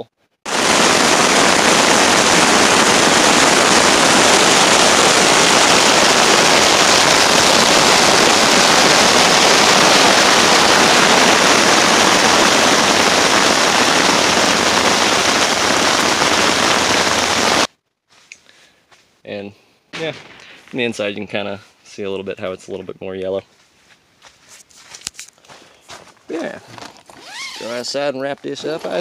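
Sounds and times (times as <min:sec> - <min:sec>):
hail pelting tent fabric: 0:00.5 - 0:17.7, 0:26.3 - 0:29.0.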